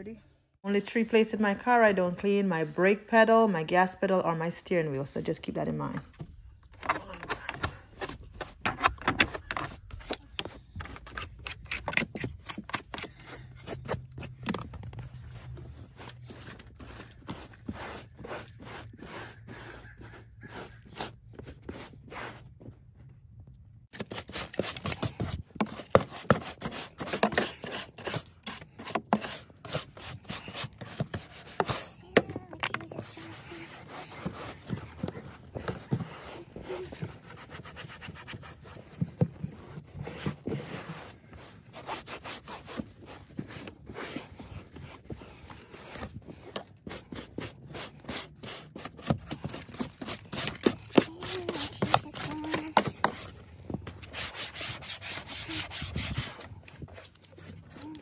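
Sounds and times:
scrub brush scrubbing plastic: 0:06.9 - 0:22.5, 0:23.9 - 0:58.0
cloth rubbing over plastic: 0:29.5 - 0:38.8.

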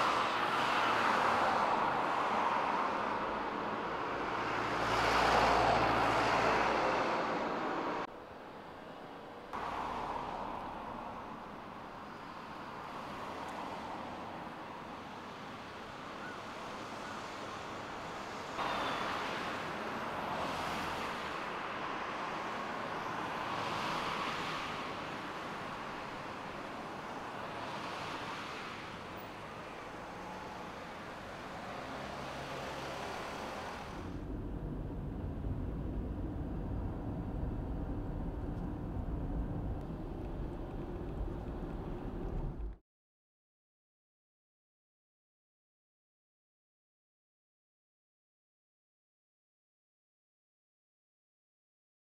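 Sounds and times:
rushing hiss of traffic: 0:09.6 - 0:34.3.

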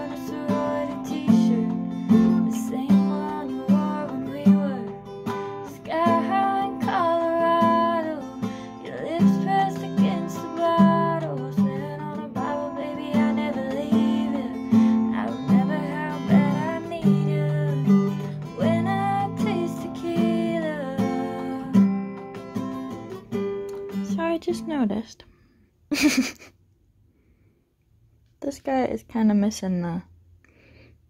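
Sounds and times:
woman singing: 0:00.0 - 0:21.9
acoustic guitar strumming: 0:00.0 - 0:25.0.

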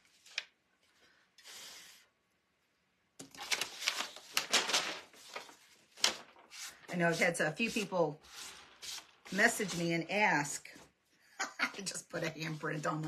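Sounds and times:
paper rustling and crinkling: 0:03.2 - 0:10.1.

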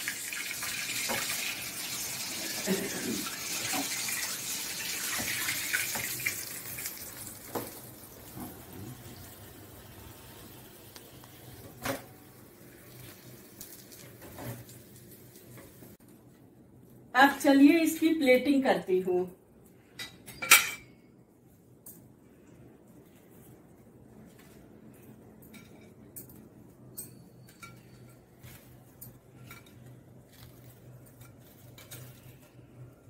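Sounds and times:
food deep-frying in hot oil: 0:00.0 - 0:16.0.

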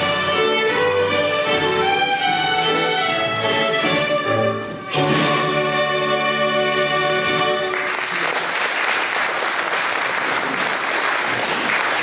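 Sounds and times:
audience applause: 0:07.6 - 0:12.0.

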